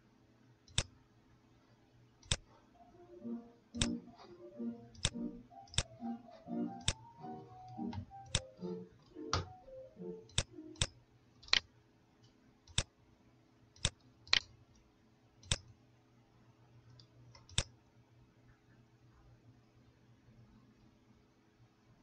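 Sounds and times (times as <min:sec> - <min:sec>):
faint steady hum: 0:00.0 - 0:22.0
computer mouse clicks: 0:00.7 - 0:01.0, 0:02.2 - 0:02.5, 0:03.8 - 0:04.3, 0:04.9 - 0:06.0, 0:06.7 - 0:07.1, 0:07.7 - 0:08.5, 0:10.2 - 0:12.9, 0:13.8 - 0:15.8, 0:16.9 - 0:17.8.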